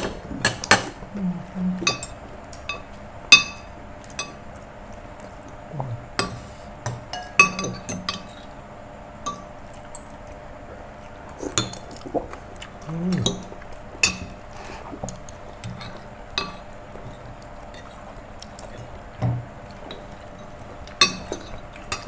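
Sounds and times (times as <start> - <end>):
spoons clinking on plates: 6.2 - 8.4.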